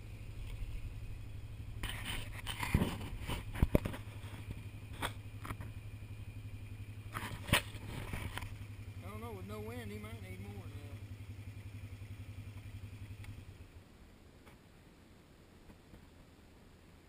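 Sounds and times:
low steady rumble: 0.0 - 17.0
camera handling knocks and scrapes: 1.8 - 4.4.

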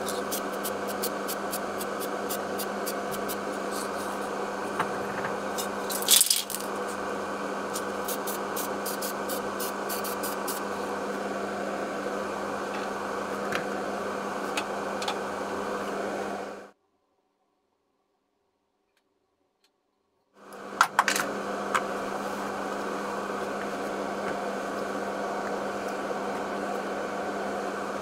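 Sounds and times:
extraction fans humming: 0.0 - 16.8, 20.4 - 28.0.

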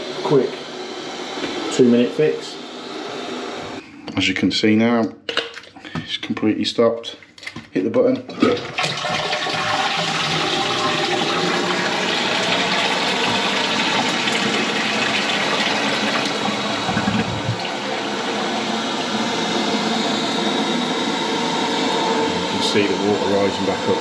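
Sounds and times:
toilet cistern flushing: 8.1 - 21.2
flush valve shutting: 8.3 - 19.1
cistern refilling: 8.3 - 20.0.

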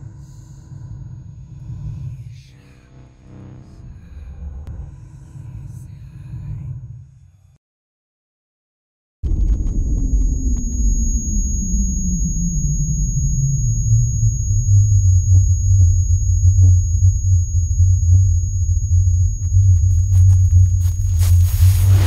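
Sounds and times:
deep synthesized drone: 9.3 - 22.0
thin high whine: 10.1 - 22.0.

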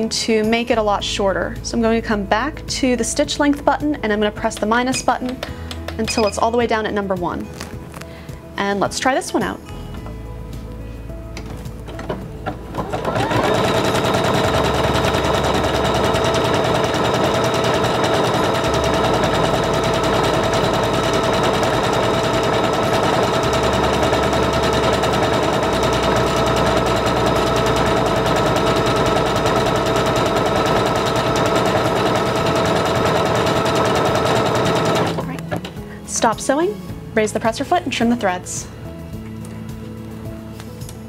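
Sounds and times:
sewing machine whirring: 12.7 - 35.3.

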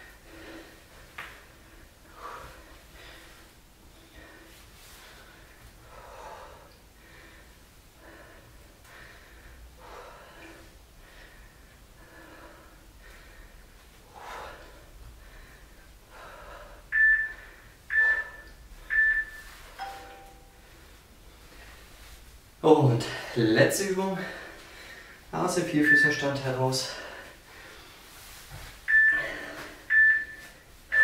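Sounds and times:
man breathing heavily: 0.0 - 18.9, 23.0 - 25.3, 26.7 - 31.0
interval timer beeps: 16.9 - 20.6, 25.8 - 26.4, 28.9 - 31.0.

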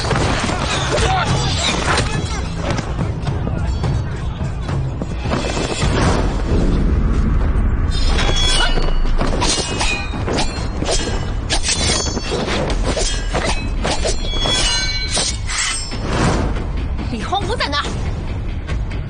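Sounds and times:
background music: 0.0 - 19.0
steady low rumble: 6.2 - 9.3.

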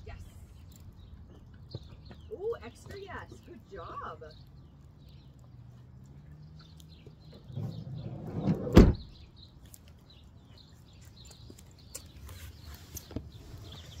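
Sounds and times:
van sliding door slamming shut: 7.6 - 9.1.

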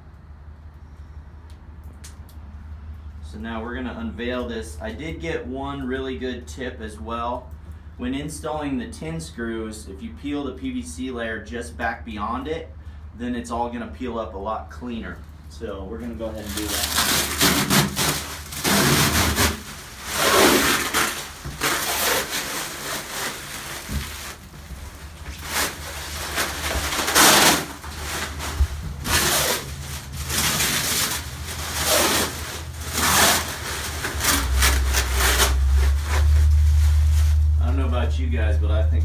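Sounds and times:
plastic film peeling and crumpling: 16.0 - 38.0.

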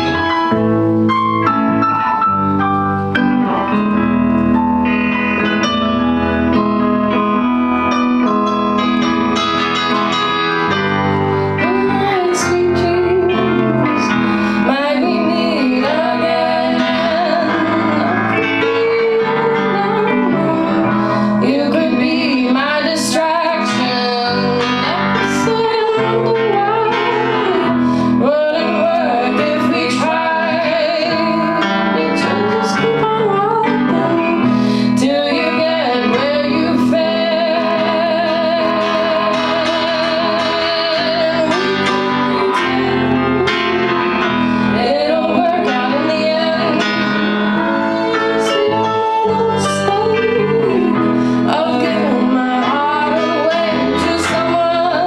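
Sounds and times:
electric guitar: 0.0 - 55.0
keyboard: 0.0 - 55.0
woman singing: 11.5 - 55.0.

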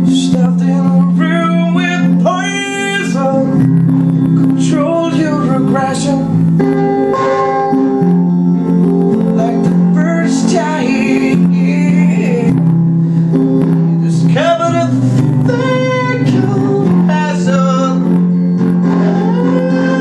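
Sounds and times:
man singing: 0.0 - 3.7, 4.4 - 6.6, 9.1 - 12.7, 13.8 - 20.0
guitar chords: 0.0 - 20.0.

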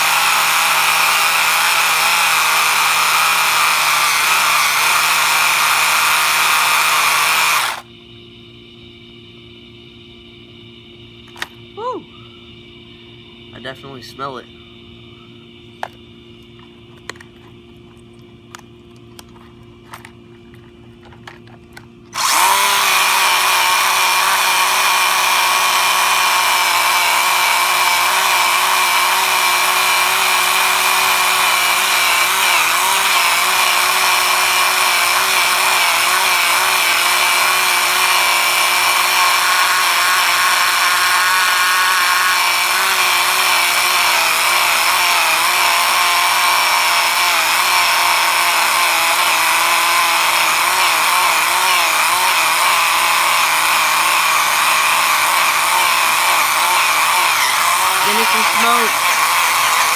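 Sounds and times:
electric toy car motor whining: 0.0 - 7.9, 22.1 - 59.9.

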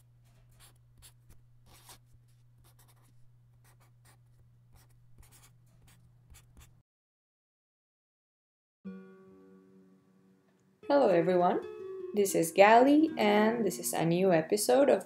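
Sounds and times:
pen scratching on paper: 0.0 - 6.8.

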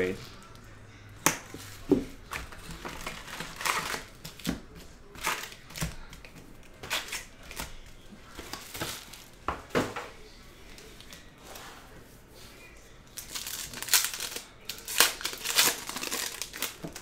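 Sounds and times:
foil packs rustling and crinkling: 1.6 - 9.4, 13.2 - 17.0.

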